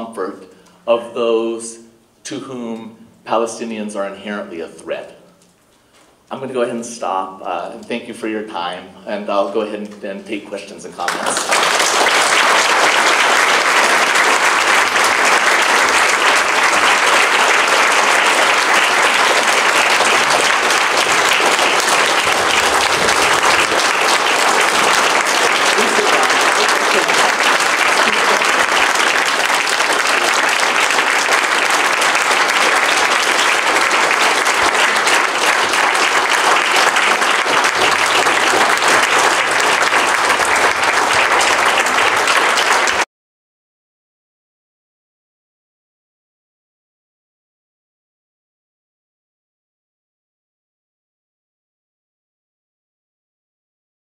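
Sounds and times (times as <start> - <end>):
audience applauding: 11.0 - 43.1.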